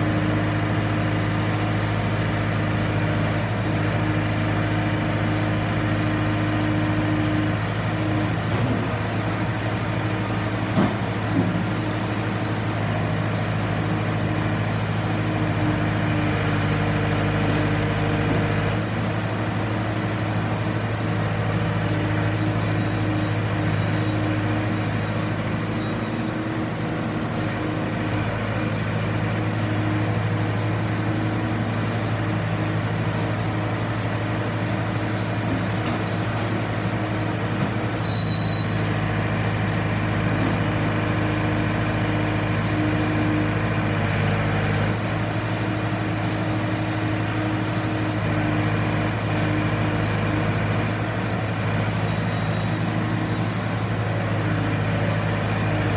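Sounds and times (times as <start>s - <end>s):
diesel engine running: 0.0s - 55.9s
brief high squeal: 38.0s - 39.0s.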